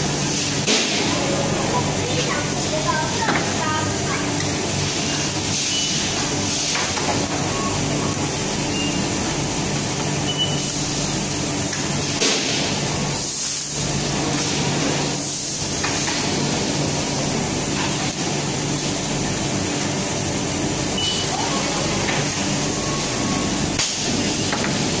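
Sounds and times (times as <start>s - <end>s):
factory machinery hum and hiss: 0.0s - 25.0s
short high electronic beeps: 10.3s - 10.7s.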